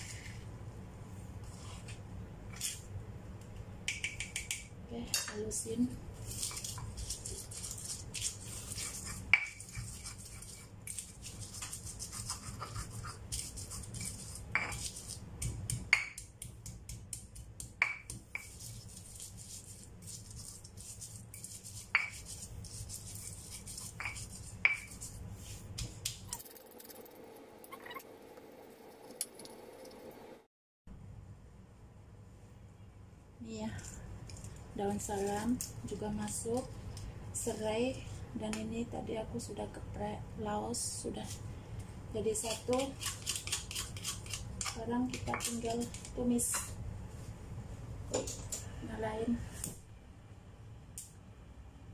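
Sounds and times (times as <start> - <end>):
pestle grinding in mortar: 42.8 - 46.1.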